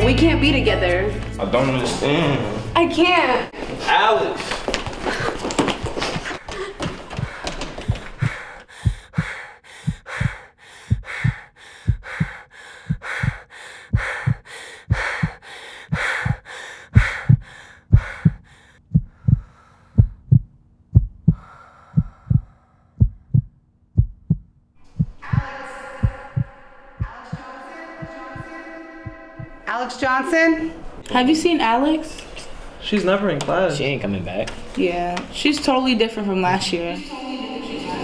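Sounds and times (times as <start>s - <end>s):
heartbeat thumps: 4.8s - 29.7s.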